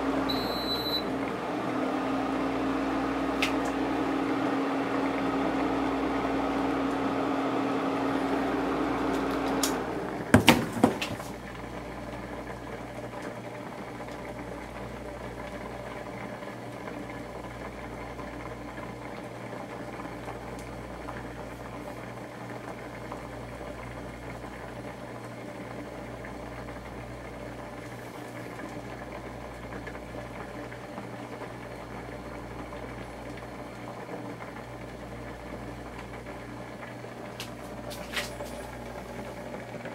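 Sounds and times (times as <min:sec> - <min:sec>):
cooktop electrical hum: 0:00.0 - 0:39.9.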